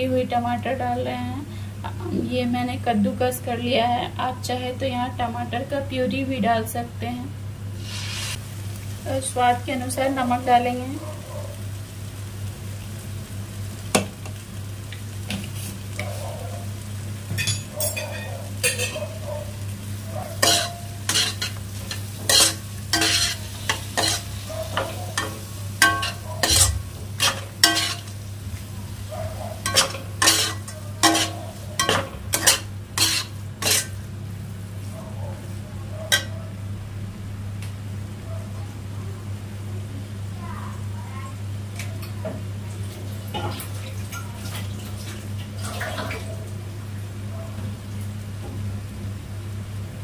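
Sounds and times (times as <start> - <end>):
masala sizzling in a wok: 0.0 - 50.0
metal spatula scraping a pan: 7.8 - 8.4, 20.4 - 28.1, 29.5 - 34.0
steady low hum: 18.7 - 41.7.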